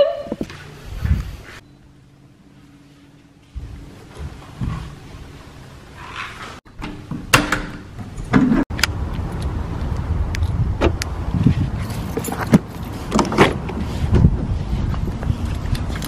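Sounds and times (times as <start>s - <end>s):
steady low rumble: 3.3s - 5.8s, 8.7s - 12.2s.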